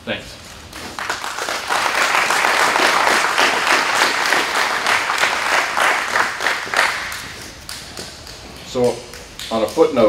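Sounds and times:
audience applauding: 0.8 - 8.7.

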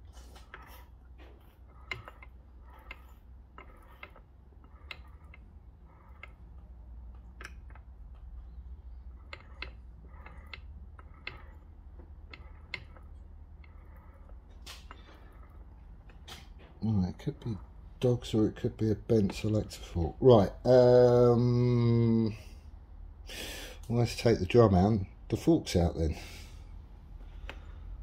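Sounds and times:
gears clicking and ticking: 0.3 - 16.6.

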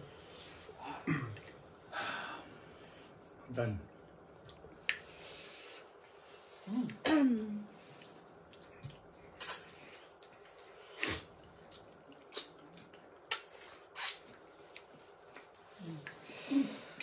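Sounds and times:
person chewing food: 7.9 - 16.3.

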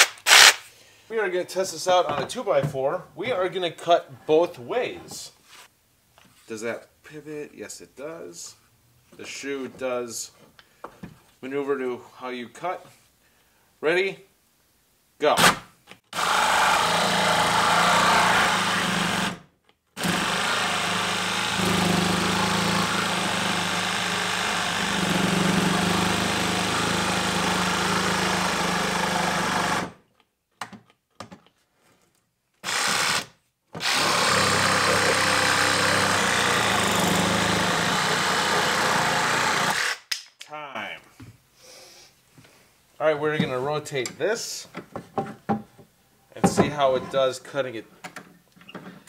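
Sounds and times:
reciprocating saw cutting wood: 16.2 - 19.4, 20.0 - 29.9, 33.8 - 40.1.

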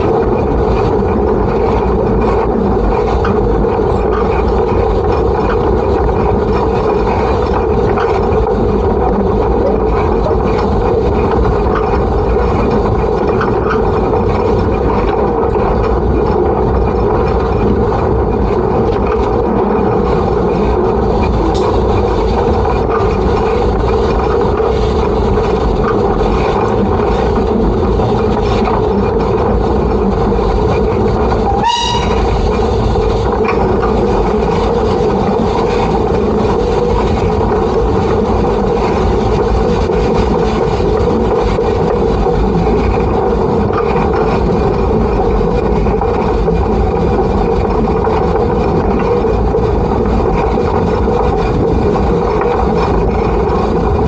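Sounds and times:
steam locomotive running: 0.0 - 54.0
rising squeal: 31.4 - 32.4.

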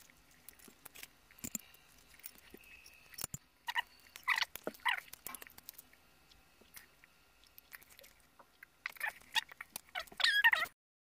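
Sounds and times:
person chewing food: 0.0 - 10.8.

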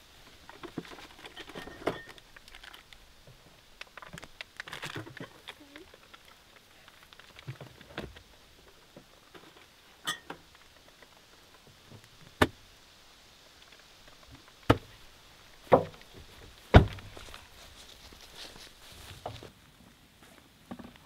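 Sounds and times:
truck door thudding shut: 16.7 - 17.1.

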